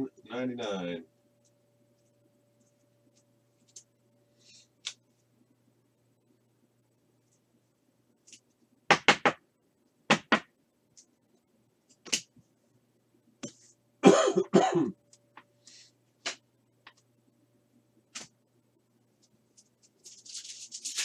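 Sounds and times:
person coughing: 14.0 - 15.0
cards rustling: 19.2 - 21.0.

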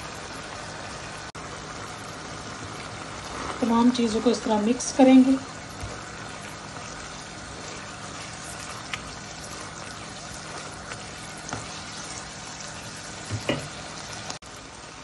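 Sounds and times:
food sizzling and bubbling in pan: 0.0 - 15.0
spatula tapping pan: 10.4 - 12.1.

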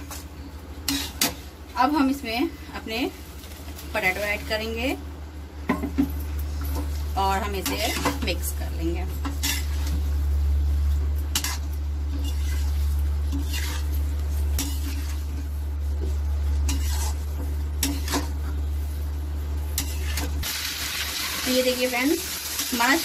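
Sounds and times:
steady low hum: 0.0 - 20.9
metal spatula scraping a pan: 0.8 - 1.4, 7.5 - 8.4, 9.3 - 10.0, 11.3 - 15.5, 16.5 - 18.6, 19.7 - 20.3.

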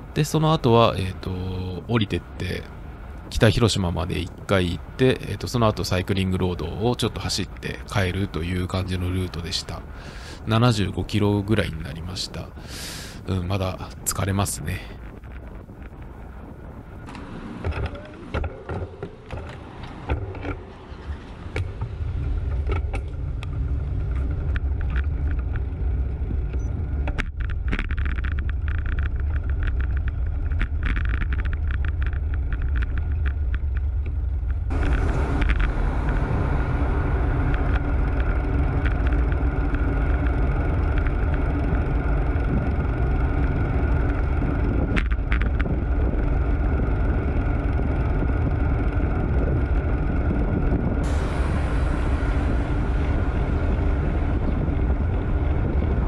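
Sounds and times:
tyre and road noise: 0.0 - 56.0
wind buffeting microphone: 0.0 - 56.0
light clicks and rattles: 17.0 - 36.2.

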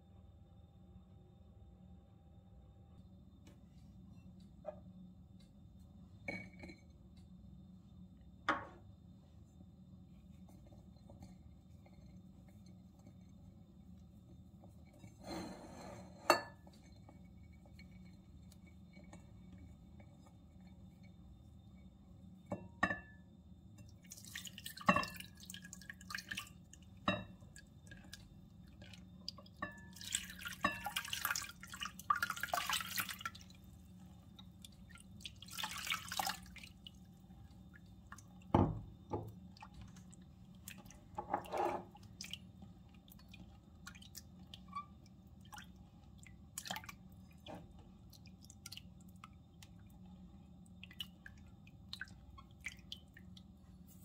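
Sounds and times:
light kitchen knocks and clinks: 6.2 - 7.0, 8.4 - 8.8, 38.5 - 39.4.

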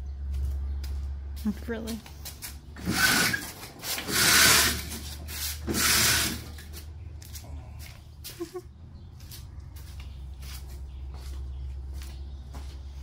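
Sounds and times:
rasping rubbing strokes: 2.8 - 6.9.

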